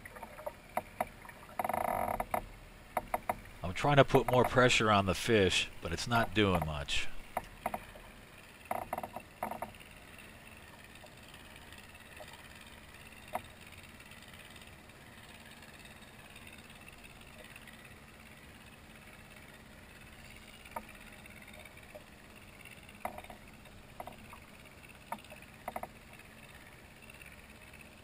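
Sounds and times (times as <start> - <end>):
water lapping against kayak hull: 0.0 - 27.8
sharp clicks: 4.1 - 4.7.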